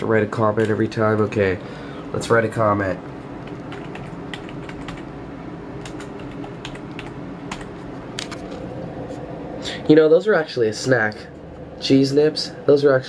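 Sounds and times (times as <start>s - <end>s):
steady low hum: 0.0s - 13.0s
keyboard keys clicking: 0.5s - 1.4s, 3.4s - 5.1s, 5.8s - 8.6s.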